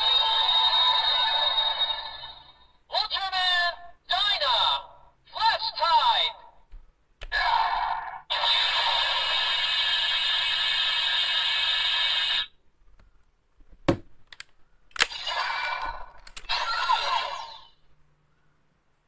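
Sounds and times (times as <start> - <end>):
electronic toy sound effects: 0.0 - 2.6, 7.3 - 12.5, 15.1 - 17.8.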